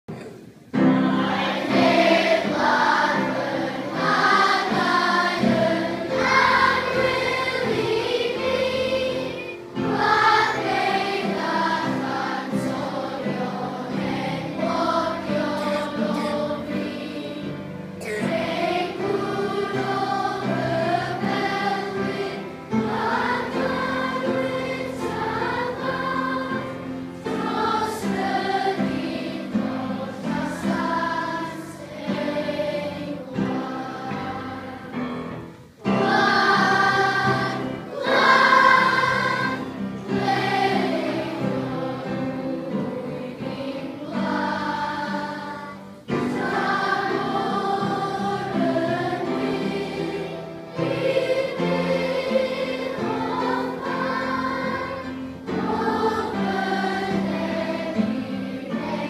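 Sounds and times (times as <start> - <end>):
children singing together: 0.1 - 59.0.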